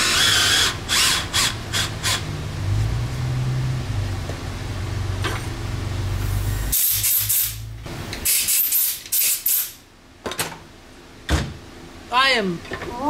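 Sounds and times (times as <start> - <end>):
compressed air blow gun hissing: 6.2 - 9.8.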